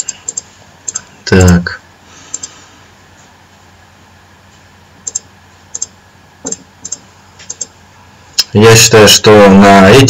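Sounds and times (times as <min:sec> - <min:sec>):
computer mouse buttons clicking: 0:00.0 - 0:01.5, 0:05.0 - 0:07.7.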